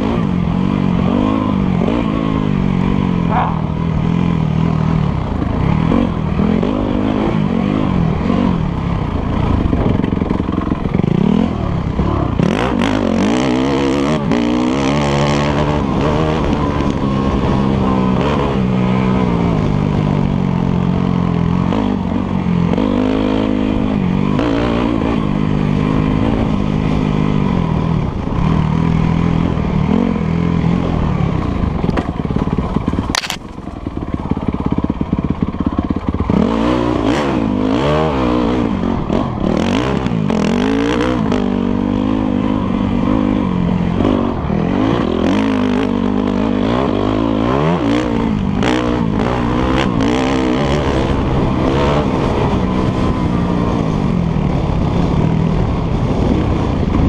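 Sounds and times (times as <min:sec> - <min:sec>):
dirt bike engine revving: 0:00.0 - 0:57.0
sharp crack: 0:33.0 - 0:33.8.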